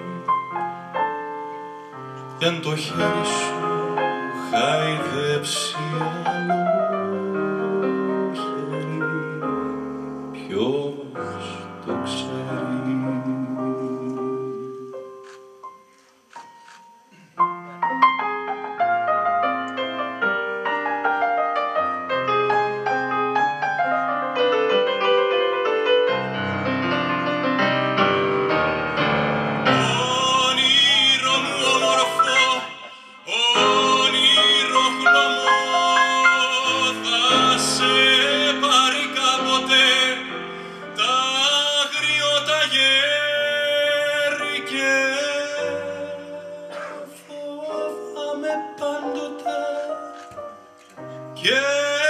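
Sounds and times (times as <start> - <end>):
digital stage piano chords and runs: 0.0 - 52.0
piano playing: 0.0 - 52.0
man singing: 2.4 - 14.9, 29.6 - 50.3, 51.3 - 52.0.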